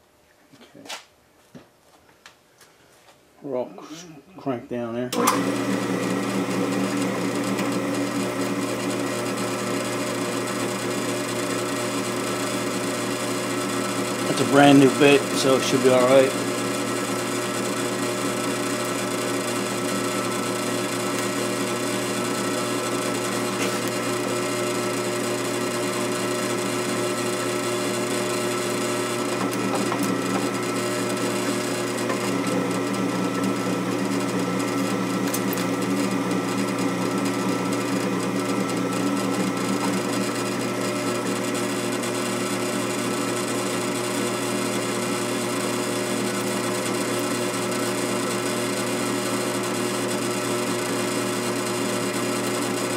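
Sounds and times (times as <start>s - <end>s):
drill press drilling into metal: 5.2s - 52.9s.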